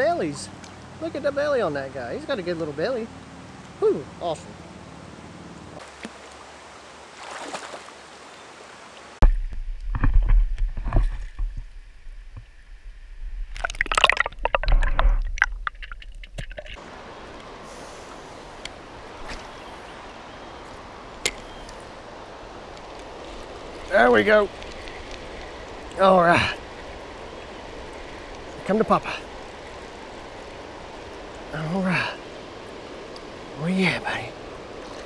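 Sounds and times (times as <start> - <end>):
river rushing: 0.0 - 9.2, 16.7 - 35.0.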